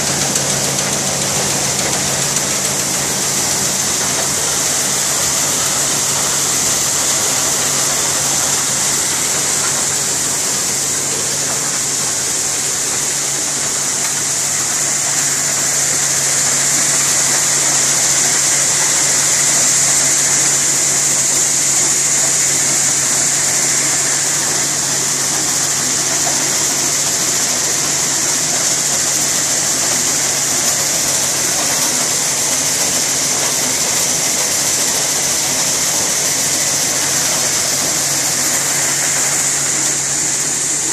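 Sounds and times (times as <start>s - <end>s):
low motor hum: 0.0s - 28.4s
beans rattling through sorting machine: 0.0s - 40.9s.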